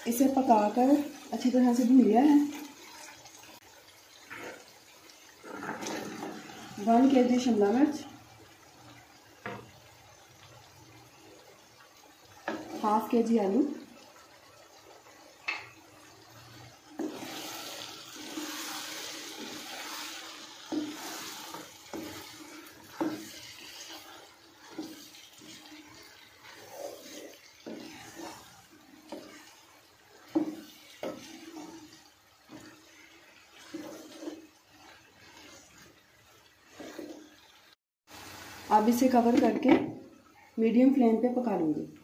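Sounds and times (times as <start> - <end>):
vegetables sizzling: 0.0 - 41.8
spatula knocking and scraping wok: 9.4 - 9.8, 12.3 - 13.4, 15.4 - 15.8, 17.0 - 37.7.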